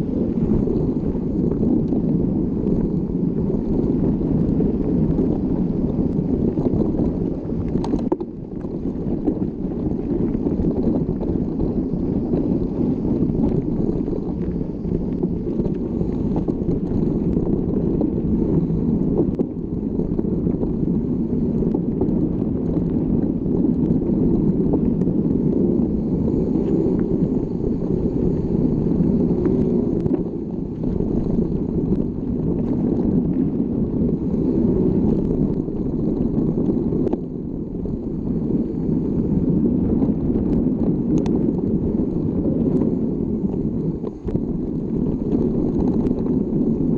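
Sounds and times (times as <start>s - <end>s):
wind on microphone: 0.0s - 46.9s.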